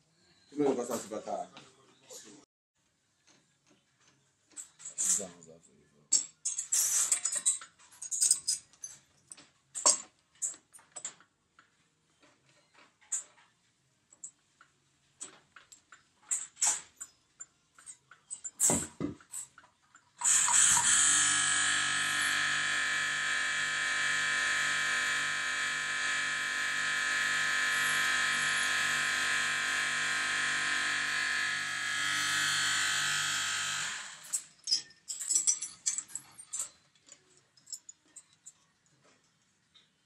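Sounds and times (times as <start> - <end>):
pulsing machine whine: 20.2 - 34.3.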